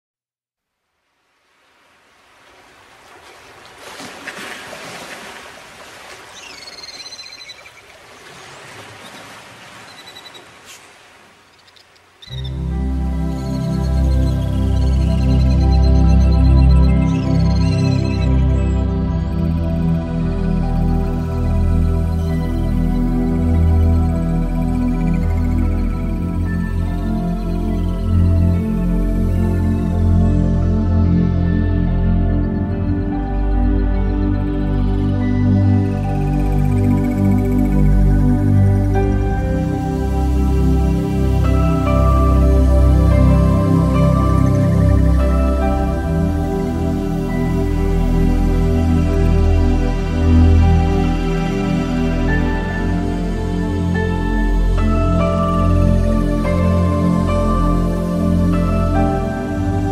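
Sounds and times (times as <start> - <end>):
rushing water noise: 1.0 - 15.2
slow ambient music: 1.3 - 10.4, 12.2 - 59.9
whistled bird-like call: 6.3 - 7.8, 9.0 - 10.5, 11.5 - 12.6.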